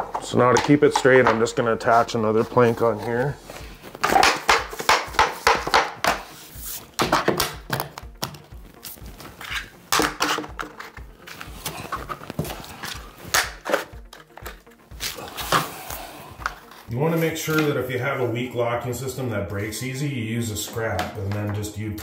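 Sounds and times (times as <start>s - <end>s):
vinyl planks clicking together: 0.0s - 2.0s, 4.0s - 6.2s, 9.4s - 15.6s.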